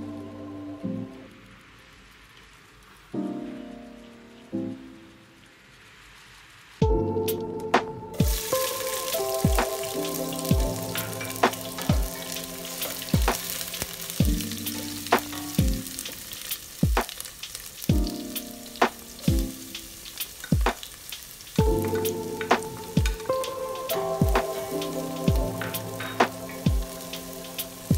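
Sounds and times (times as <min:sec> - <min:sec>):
onions sizzling in hot oil: 0:00.0 - 0:27.9
background music with kick drum: 0:06.8 - 0:17.2, 0:17.8 - 0:20.9, 0:21.6 - 0:27.9.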